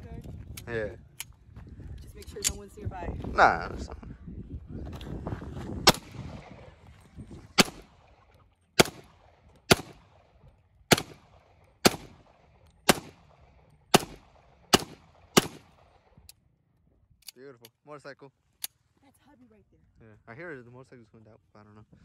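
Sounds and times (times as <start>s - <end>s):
pistol shots: 5.8s - 6.6s, 7.6s - 8.2s, 8.8s - 16.1s.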